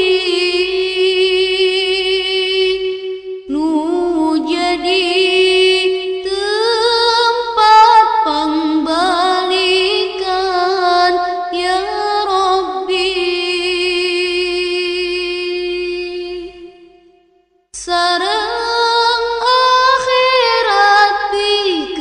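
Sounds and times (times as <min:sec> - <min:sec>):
person singing devotional song: 0:00.0 - 0:17.1, 0:17.8 - 0:22.0.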